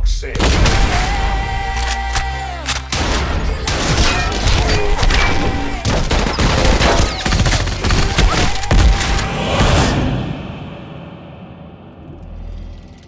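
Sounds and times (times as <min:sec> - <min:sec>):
background music: 0:00.3 - 0:10.6.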